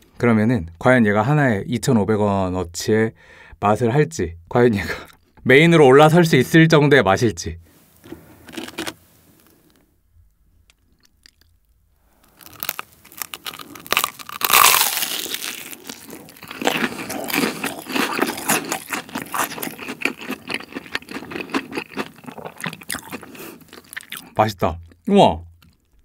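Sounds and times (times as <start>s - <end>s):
crunching bites of fried food: 8.4s - 9.0s, 10.7s - 25.0s
crisp chewing: 8.4s - 9.8s, 10.6s - 25.0s.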